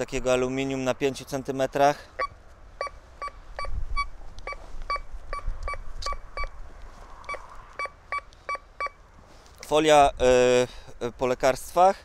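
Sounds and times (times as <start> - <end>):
metal detector beeps: 2.2 - 6.6, 7.3 - 9.0.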